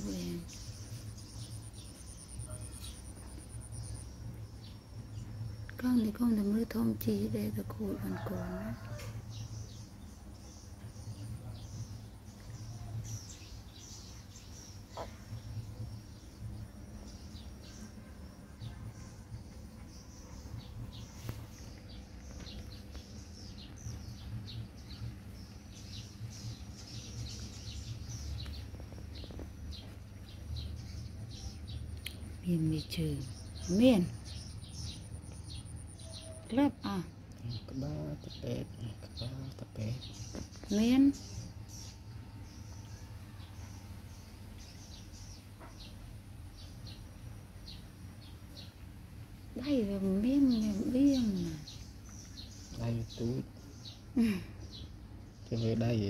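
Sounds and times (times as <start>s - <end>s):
small birds chirping: 0.0s - 56.0s
steady low hum: 0.0s - 56.0s.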